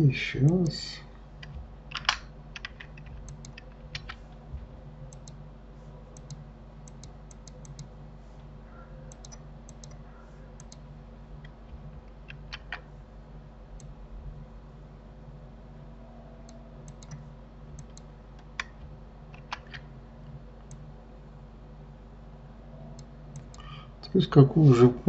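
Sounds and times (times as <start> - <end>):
faint low hum: 0.0 - 25.0
keyboard and mouse clicks: 1.4 - 4.2, 5.1 - 5.4, 6.2 - 7.9, 9.1 - 10.0, 10.6 - 10.8, 11.4 - 12.9, 16.4 - 19.9, 23.0 - 23.7.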